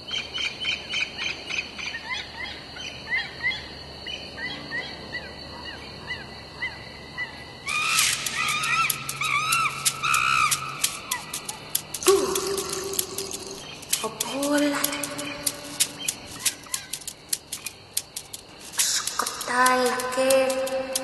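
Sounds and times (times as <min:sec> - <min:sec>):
high insect drone: 0:02.1 - 0:21.0
short chirping bird calls: 0:07.7 - 0:19.8.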